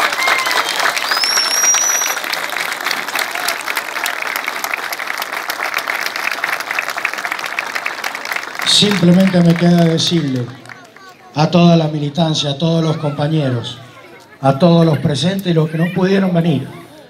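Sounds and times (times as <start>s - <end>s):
crowd applauding: 0.0s - 12.0s
short rising whistle: 0.5s - 2.2s.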